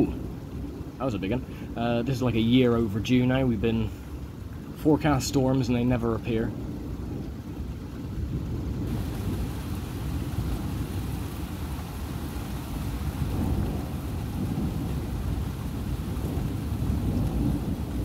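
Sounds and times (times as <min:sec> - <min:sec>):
faint steady hiss: 0:00.0 - 0:18.0
rolling thunder: 0:06.5 - 0:18.0.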